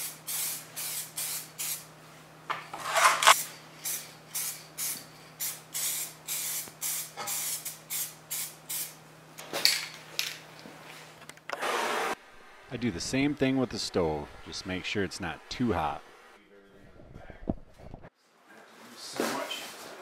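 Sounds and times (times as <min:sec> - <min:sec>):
spray paint can spraying: 0:00.0 - 0:01.8, 0:03.3 - 0:09.0.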